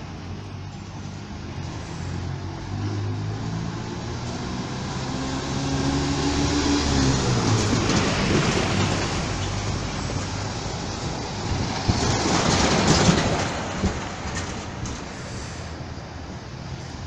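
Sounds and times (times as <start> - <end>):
bus driving past: 0.0 - 17.0
bus body rattles: 7.3 - 15.7.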